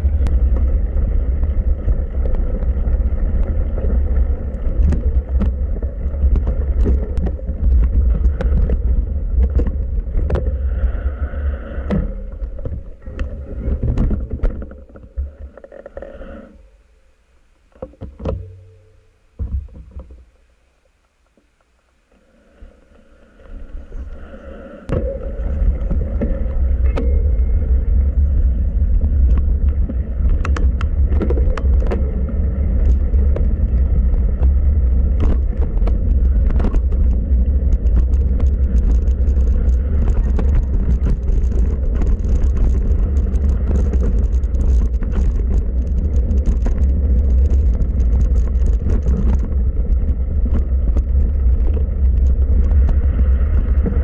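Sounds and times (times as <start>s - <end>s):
bike clicking and rattling: 0.0s - 10.7s, 24.9s - 54.0s
wind and trail rumble: 0.0s - 16.8s, 22.0s - 54.0s.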